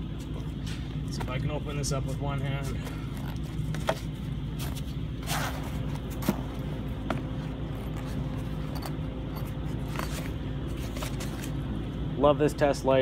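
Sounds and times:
steady low hum: 0.0s - 13.0s
handling clicks and scrapes: 7.0s - 11.6s.

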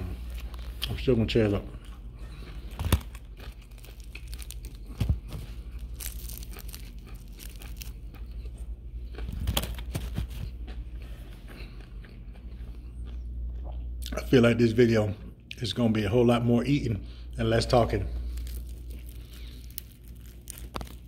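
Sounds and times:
crunching and chewing fried chicken: 0.0s - 14.6s, 17.7s - 21.0s
meat tearing from bone: 2.6s - 8.4s, 18.3s - 21.0s.

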